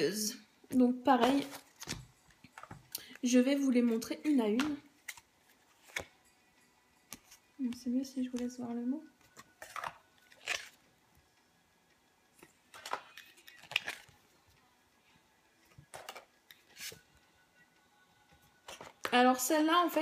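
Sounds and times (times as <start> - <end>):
cards sliding off a deck: 5.8 - 6.1, 15.9 - 17.0.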